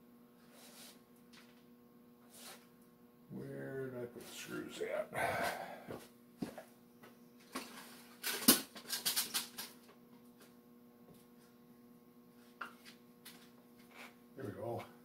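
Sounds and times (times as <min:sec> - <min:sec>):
steady low hum: 0:00.0 - 0:08.7
metal parts clacking and rattling: 0:08.2 - 0:09.7.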